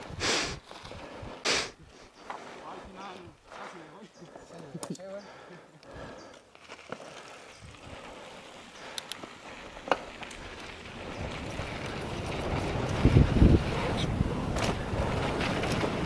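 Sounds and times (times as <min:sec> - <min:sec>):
bike clicks and rattles: 0:05.8 - 0:16.0
rushing noise of riding: 0:06.6 - 0:16.0.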